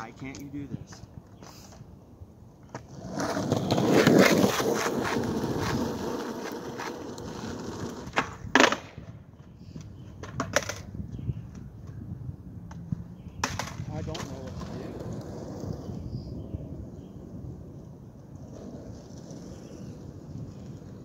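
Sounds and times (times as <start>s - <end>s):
skateboard wheels rolling on asphalt: 0.0s - 21.0s
skateboard clack: 2.7s - 12.0s, 12.6s - 16.0s.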